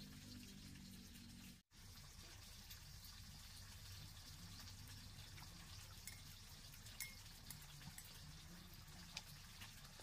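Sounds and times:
spoon and chopsticks clicking bowls: 0:05.9 - 0:08.3.

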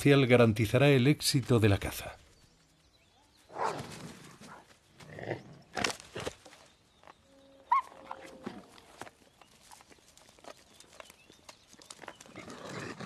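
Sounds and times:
rustling on dry leaves: 0:05.8 - 0:12.6.

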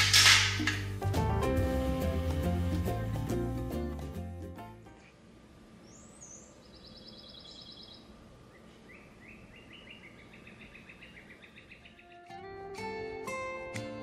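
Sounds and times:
outdoor background noise: 0:04.2 - 0:14.0
songbirds singing: 0:05.0 - 0:12.5.

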